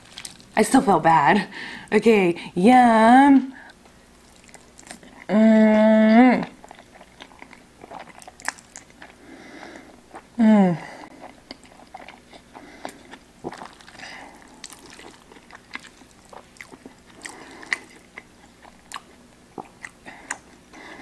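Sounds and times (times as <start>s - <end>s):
wet chewing and smacking: 0.0s - 0.6s, 3.6s - 5.3s, 6.4s - 9.2s, 11.1s - 20.9s.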